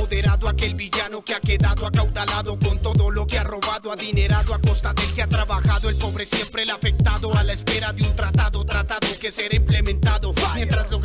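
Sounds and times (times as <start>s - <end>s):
deep kick drums: 0.0s - 0.7s, 1.5s - 3.4s, 4.2s - 6.2s, 6.8s - 8.8s, 9.6s - 11.0s
hip hop music with rapping: 0.0s - 11.0s.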